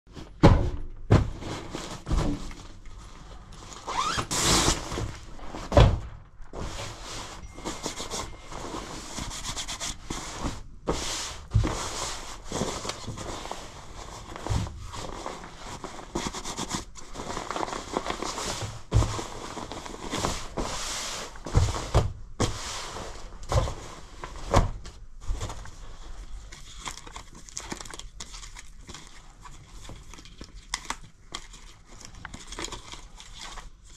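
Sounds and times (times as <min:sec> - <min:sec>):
jacket fabric rustling: 0:01.1 - 0:26.6.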